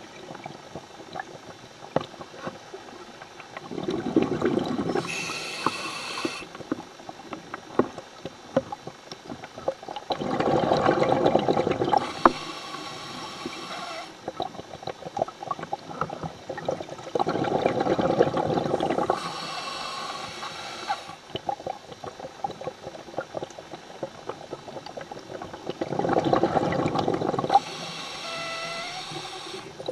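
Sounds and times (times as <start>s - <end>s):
exhaled bubbles rushing underwater: 0.0s - 6.5s, 9.5s - 29.9s
regulator inhalation hiss: 5.0s - 6.5s, 12.0s - 14.2s, 19.1s - 21.2s, 27.5s - 29.8s.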